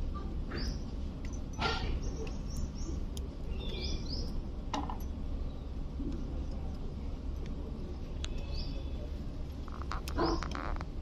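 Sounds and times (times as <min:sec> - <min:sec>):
parakeet chirps and squawks: 0:10.1 - 0:10.7.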